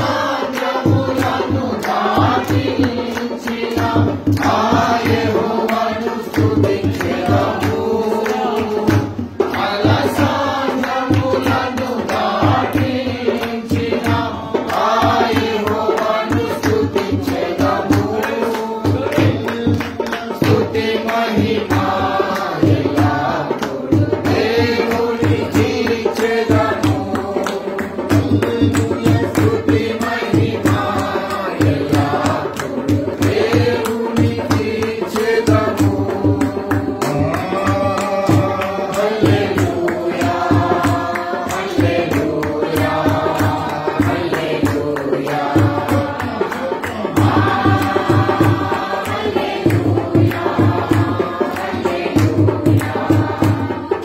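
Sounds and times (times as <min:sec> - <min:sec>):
group singing along: 0:00.0 - 0:54.0
steady low drum beat: 0:21.4 - 0:54.0
man singing into microphone: 0:34.0 - 0:47.2.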